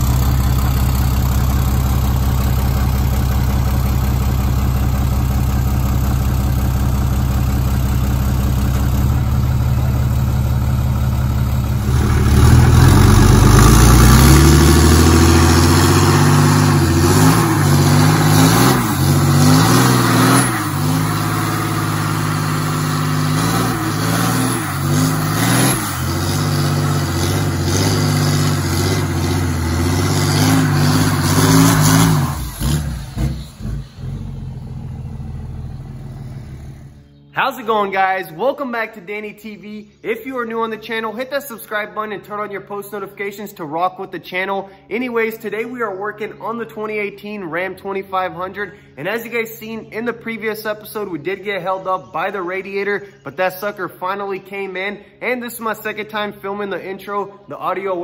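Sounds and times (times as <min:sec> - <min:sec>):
diesel engine idling and revving: 0:00.0 - 0:37.2.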